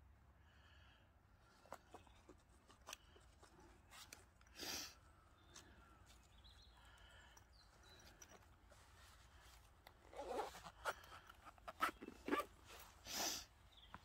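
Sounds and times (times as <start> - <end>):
zipper being pulled shut: 9.9 - 13.5.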